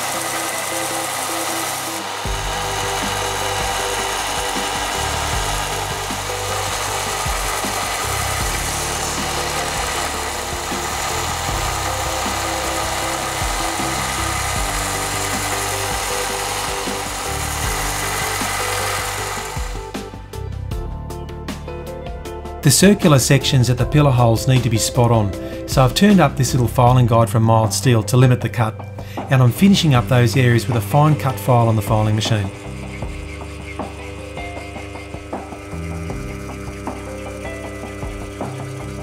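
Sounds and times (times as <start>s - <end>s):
belt sander grinding metal: 0.0s - 20.4s, 29.2s - 39.0s
background music: 0.0s - 39.0s.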